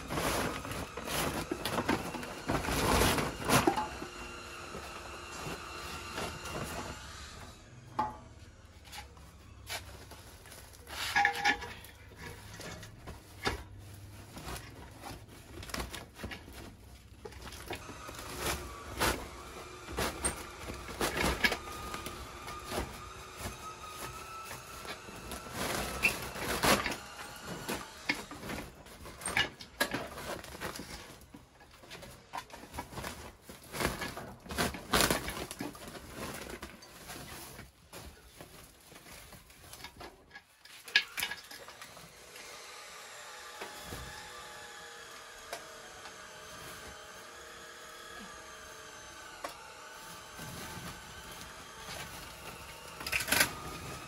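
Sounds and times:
plastic sack crackling: 0.0s - 7.1s, 9.6s - 29.2s
metal fan guards clanking: 10.9s - 13.8s.

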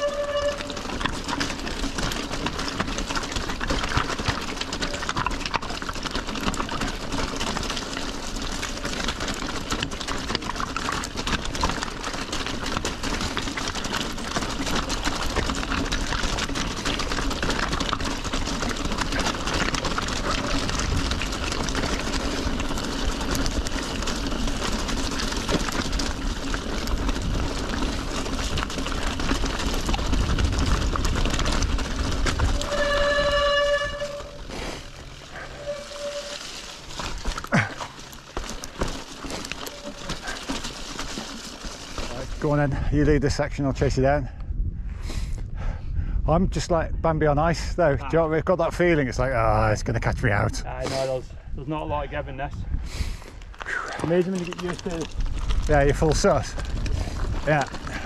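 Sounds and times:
tyres crunching over loose stones: 0.0s - 44.2s, 47.3s - 51.2s, 51.8s - 58.0s
bike rattling: 0.0s - 45.0s, 45.6s - 58.0s
low rumble from rough ground: 0.0s - 58.0s.

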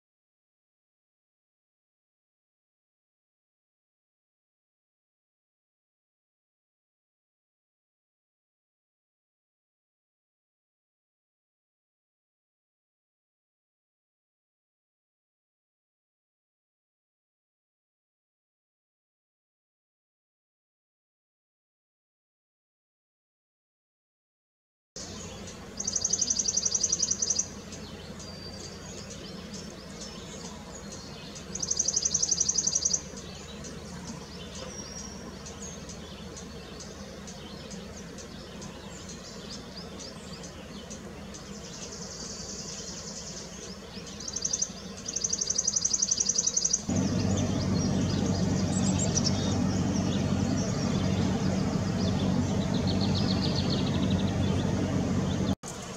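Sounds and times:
songbird trilling: 25.0s - 55.5s
steady low rumble: 46.9s - 55.6s.

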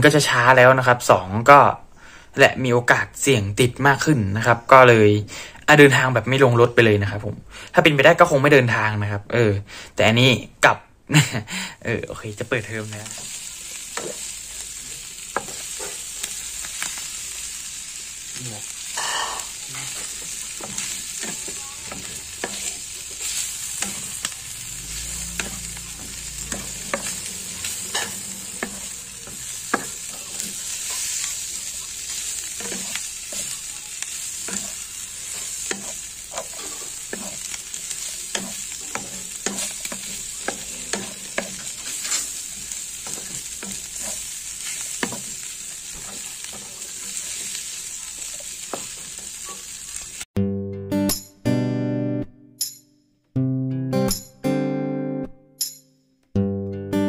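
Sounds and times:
meat sizzling in frying pan: 12.0s - 50.3s
spatula scraping and tapping pan: 13.0s - 14.3s, 15.3s - 17.1s, 18.9s - 24.4s, 25.0s - 49.7s.

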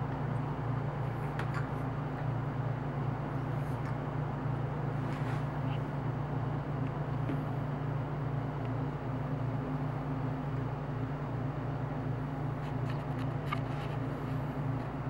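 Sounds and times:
low machinery hum: 0.0s - 15.0s.

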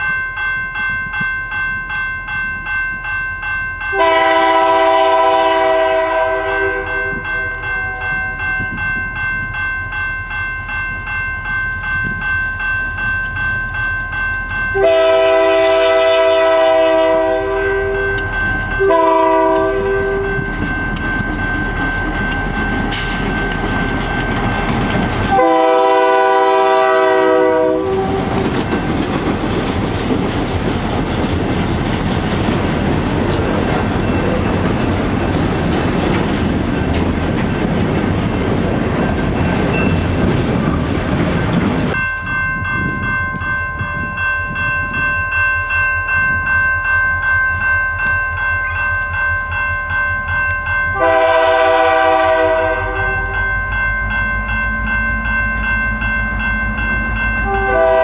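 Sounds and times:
train rumbling and clattering past: 0.0s - 58.0s
train air horn blasts: 3.9s - 8.4s, 14.8s - 18.2s, 18.8s - 20.5s, 25.3s - 28.4s, 50.9s - 53.4s, 57.4s - 58.0s.

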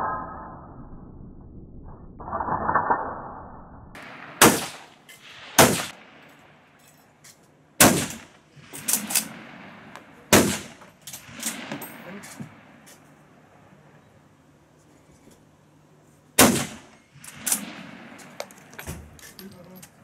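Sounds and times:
rifle shots echoing: 4.0s - 6.6s, 7.8s - 12.8s, 16.4s - 18.8s.

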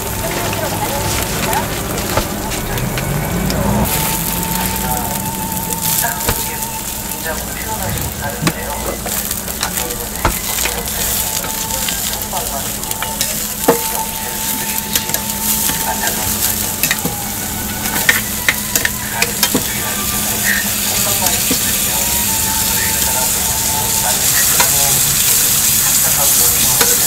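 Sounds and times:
food sizzling on griddle: 3.8s - 27.0s
metal tongs tapping griddle: 12.9s - 14.0s, 16.8s - 17.1s, 17.9s - 19.7s.

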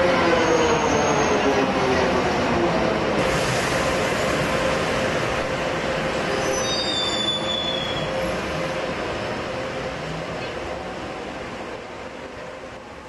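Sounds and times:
subway train rumbling: 0.0s - 13.0s
train wheels squealing: 0.4s - 1.5s, 6.2s - 8.2s.

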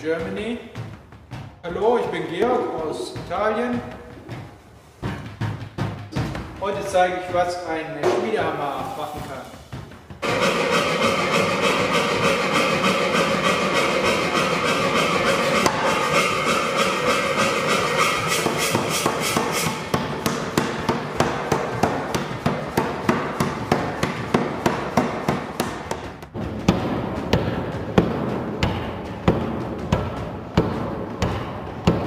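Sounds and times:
power hammer strokes: 10.2s - 24.6s.

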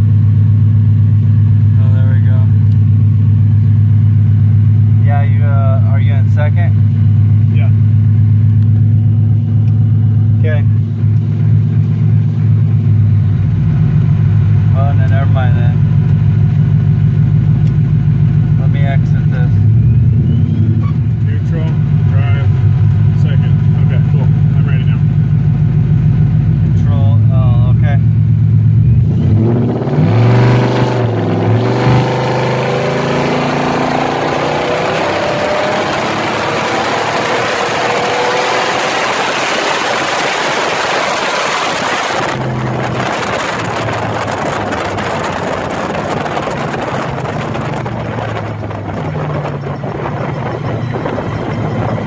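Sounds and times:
engine revving under load: 13.6s - 52.0s.

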